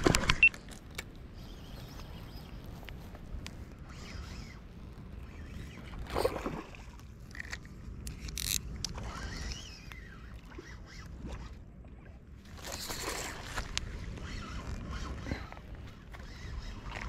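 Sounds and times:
fishing reel cranking: 0:07.3 - 0:11.1.

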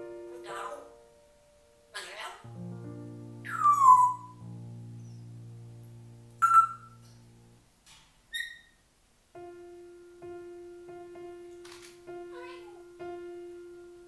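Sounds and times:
instrumental music with low notes: 0:02.4 - 0:07.6, 0:09.4 - 0:14.0
parrot whistled calls: 0:03.5 - 0:04.4, 0:06.4 - 0:07.0, 0:08.3 - 0:08.8.

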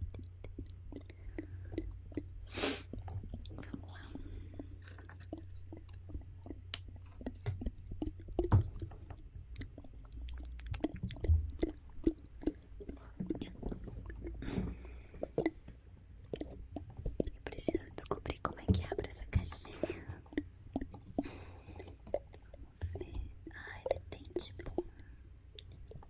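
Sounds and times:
wet lip and tongue clicks: 0:00.0 - 0:26.0
breathy hiss: 0:02.5 - 0:03.0.

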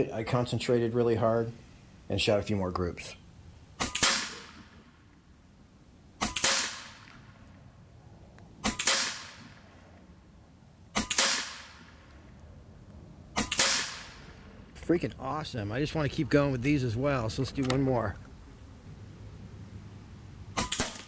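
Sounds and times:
air rifle shots: 0:03.8 - 0:05.0, 0:06.2 - 0:07.5, 0:08.6 - 0:09.8, 0:10.9 - 0:12.1, 0:13.3 - 0:14.5, 0:20.5 - 0:21.0.

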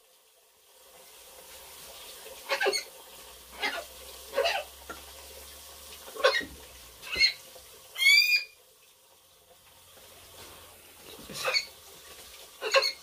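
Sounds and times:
parrot whistle-like call: 0:08.0 - 0:08.6.

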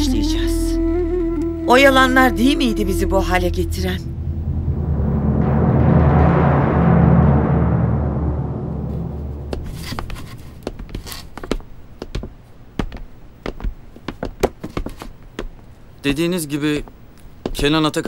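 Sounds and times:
dramatic music with timpani: 0:01.4 - 0:10.6.

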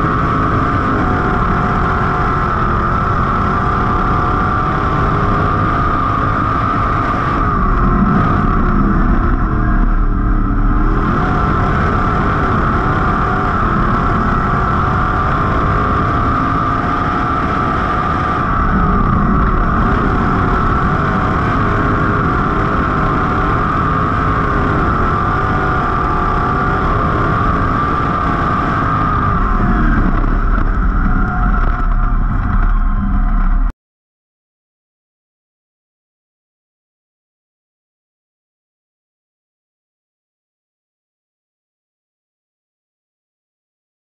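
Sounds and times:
race car engine running: 0:00.0 - 0:33.7.

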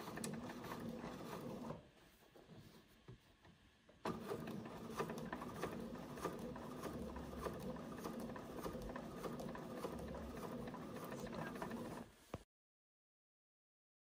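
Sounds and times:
sewing machine stitching: 0:00.0 - 0:01.8, 0:04.0 - 0:12.1.

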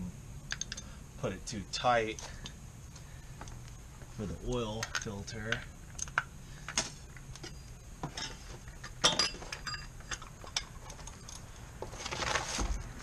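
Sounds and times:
metal tools clicking and clinking: 0:00.5 - 0:00.9, 0:04.7 - 0:06.2, 0:07.4 - 0:11.5.

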